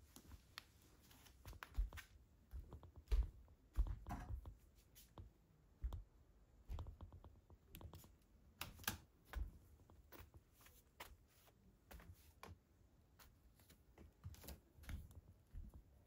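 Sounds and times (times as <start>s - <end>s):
footsteps on wooden floor: 1.1s - 5.2s.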